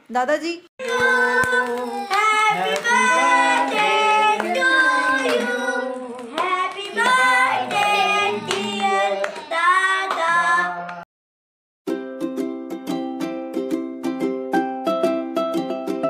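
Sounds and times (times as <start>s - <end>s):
hand clapping: 0.8s - 11.0s
people singing a birthday song: 0.8s - 11.0s.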